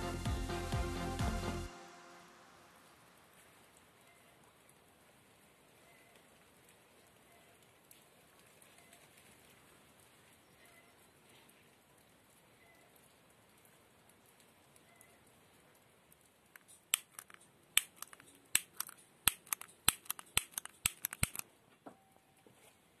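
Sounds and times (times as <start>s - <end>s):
sharp clicks and snaps: 16.1s - 21.5s.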